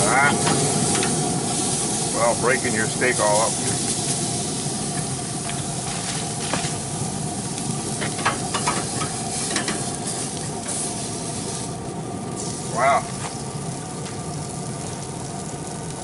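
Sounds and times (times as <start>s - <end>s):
steak sizzling on grill: 0.0s - 16.0s
metal tongs scraping grill grates: 7.9s - 10.9s.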